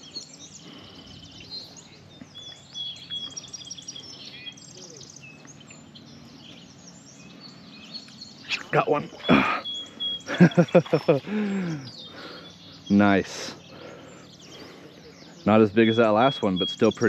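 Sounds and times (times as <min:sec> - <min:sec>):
songbirds chirping and singing: 0:00.0 - 0:17.0.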